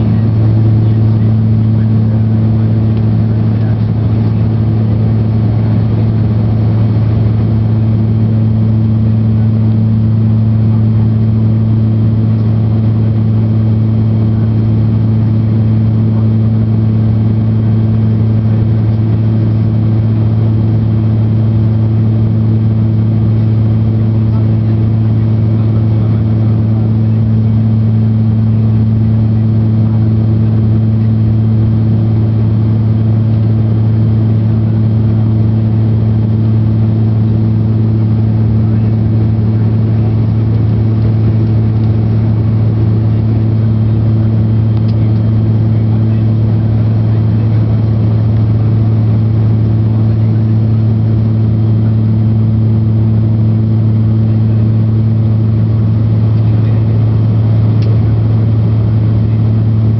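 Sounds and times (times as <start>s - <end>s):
propeller engine drone: 0.0s - 59.9s.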